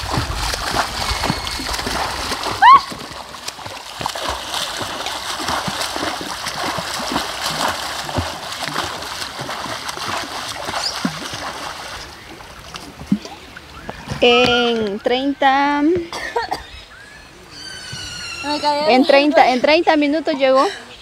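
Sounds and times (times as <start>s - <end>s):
swimmer splashing water: 0.0s - 15.8s.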